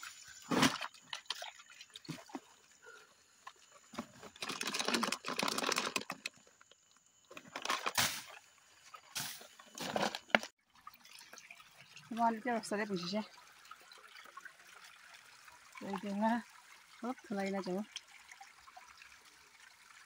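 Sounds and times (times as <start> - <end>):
plastic bottle rustling and scraping: 3.9 - 6.7, 7.3 - 8.4, 9.0 - 10.5.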